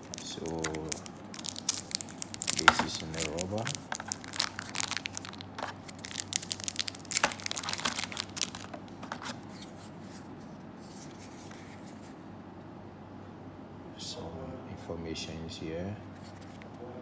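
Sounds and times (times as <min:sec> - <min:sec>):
plastic wrap crinkling and tearing: 0:00.0 - 0:09.3.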